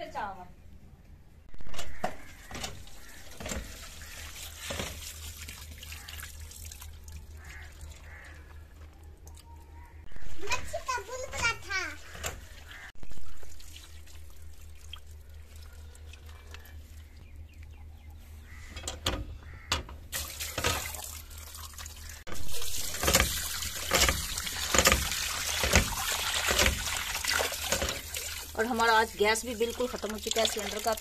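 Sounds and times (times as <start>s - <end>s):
tap water pouring into steel bowl: 2.0s - 9.5s, 20.1s - 31.0s.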